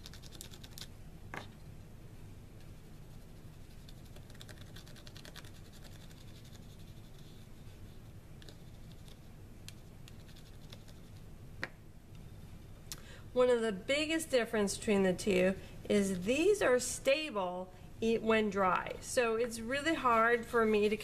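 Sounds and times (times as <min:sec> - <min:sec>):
crayon scratching on cardstock: 0:03.1 - 0:09.2, 0:10.1 - 0:11.2.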